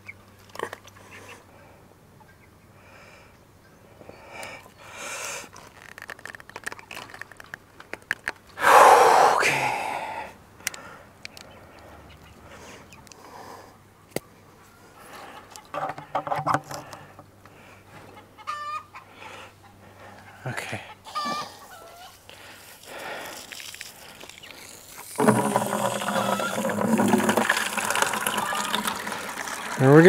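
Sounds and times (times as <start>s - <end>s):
plastic hose clicks and rattles: 5.6s - 8.4s, 15.5s - 17.0s.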